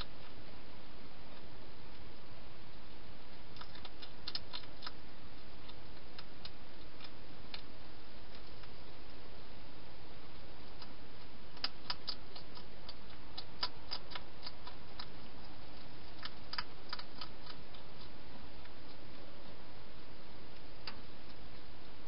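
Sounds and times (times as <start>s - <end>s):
steady hiss: 0.0s - 22.0s
hedgehog eating sharp clicks: 3.5s - 9.2s, 10.3s - 19.3s.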